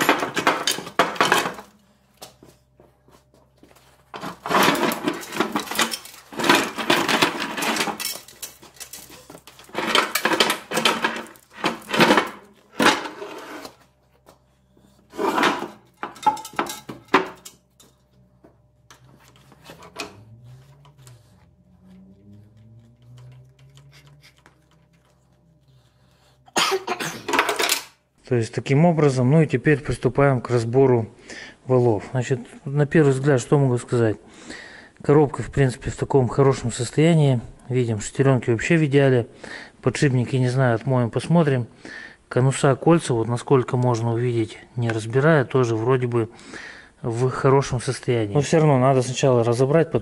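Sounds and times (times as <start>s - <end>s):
gearbox parts clanking and rattling: 0.0s - 1.7s, 4.2s - 13.2s
faint low hum: 0.0s - 27.4s.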